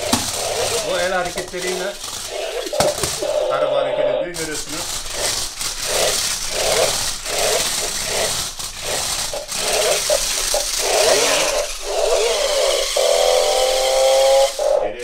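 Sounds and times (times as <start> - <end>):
toy car motors whirring: 0.0 - 15.0.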